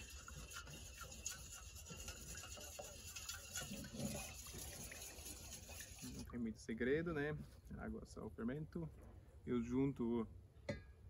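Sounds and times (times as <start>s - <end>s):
water swishing in metal bowl: 0.0s - 6.6s.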